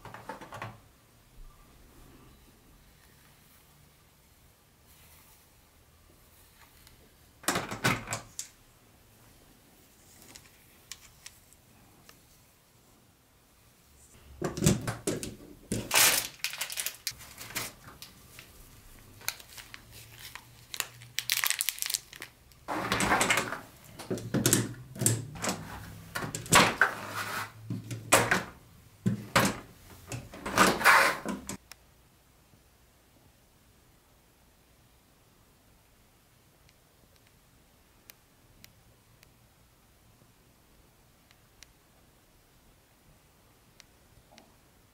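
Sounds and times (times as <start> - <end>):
plastic packaging crinkling: 15.8 - 22.7.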